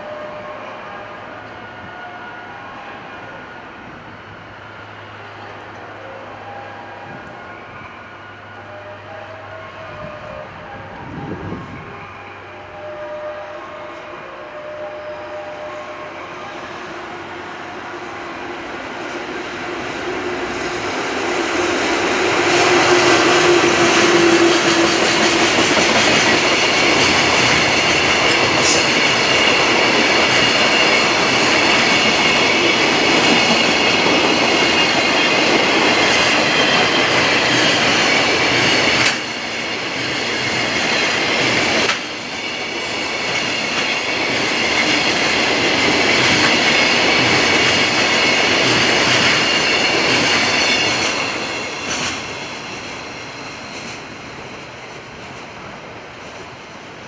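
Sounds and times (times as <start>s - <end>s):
train wheels rumbling on rail: 3.0s - 57.0s.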